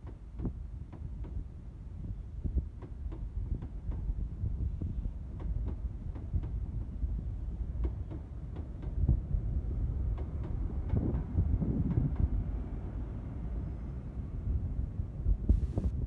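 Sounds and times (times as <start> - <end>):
train wheels clicking over rail joints: 0.0 - 1.5, 2.7 - 4.2, 5.2 - 12.7
low train rumble: 0.0 - 16.0.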